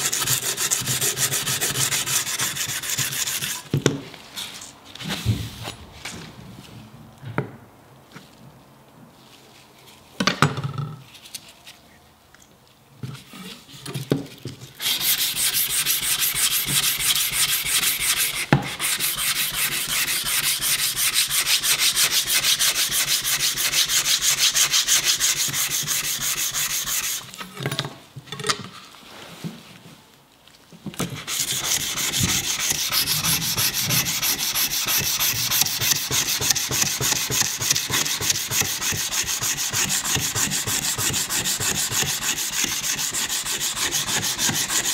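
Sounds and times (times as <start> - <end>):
sandpaper rubbing on steel blade: 0.0 - 3.7, 14.8 - 27.3, 31.2 - 44.9.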